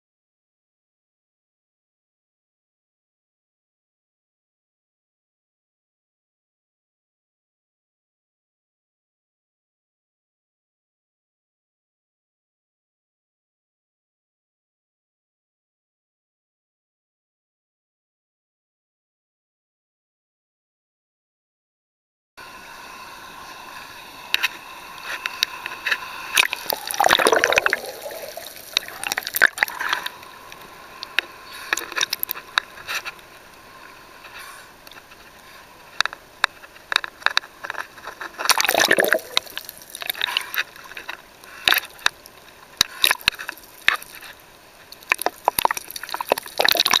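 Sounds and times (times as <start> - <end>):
sharp clicks underwater: 25.2 - 33.5, 36.0 - 47.0
water sloshing and gurgling: 26.3 - 30.6, 37.7 - 42.2, 42.8 - 47.0
water rushing surges: 26.3 - 32.6, 38.4 - 41.0.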